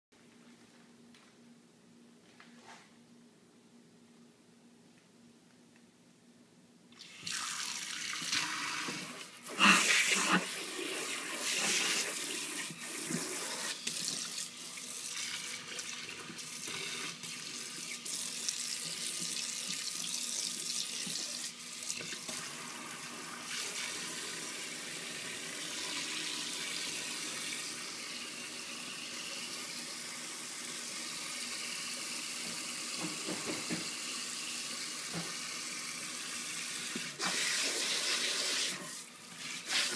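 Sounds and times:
tap water pouring into sink: 7.0s - 9.3s.

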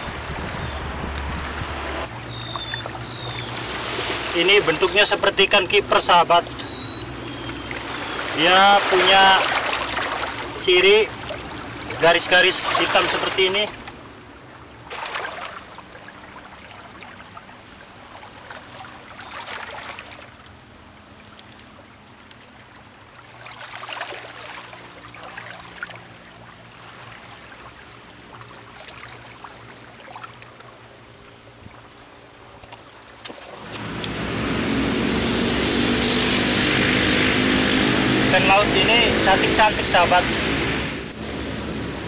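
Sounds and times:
loud engine drone: 0.1s - 14.4s, 33.6s - 42.0s
waves washing over rocks: 7.7s - 13.8s.

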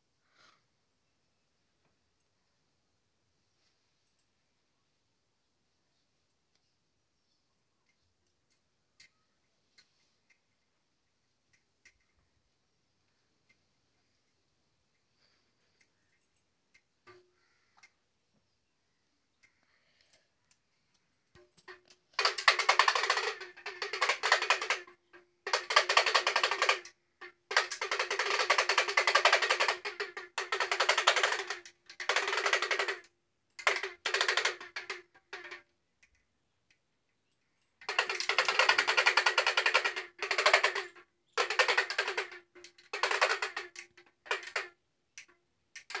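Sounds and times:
plastic baby rattle shaken: 21.4s - 35.7s, 37.8s - 46.0s.

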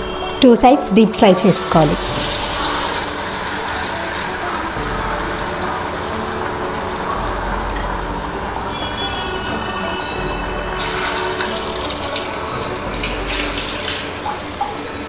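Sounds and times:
food deep-frying in hot oil: 1.2s - 15.0s.

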